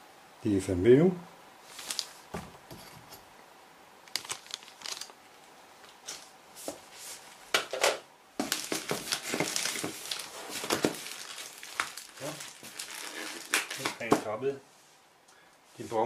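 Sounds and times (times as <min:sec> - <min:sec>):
plastic wrapping crinkling: 0:01.7 - 0:02.5, 0:04.0 - 0:05.2, 0:07.6 - 0:14.3.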